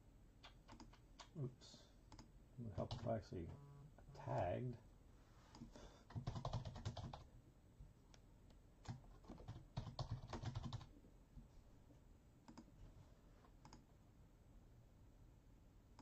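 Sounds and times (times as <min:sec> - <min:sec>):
typing on keyboard: 0:00.4 - 0:01.3, 0:02.1 - 0:03.1, 0:06.1 - 0:07.3, 0:08.8 - 0:10.9.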